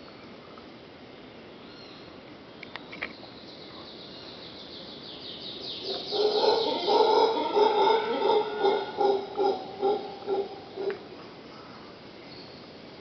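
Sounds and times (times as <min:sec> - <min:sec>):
howler monkeys roaring: 0:05.8 - 0:11.2.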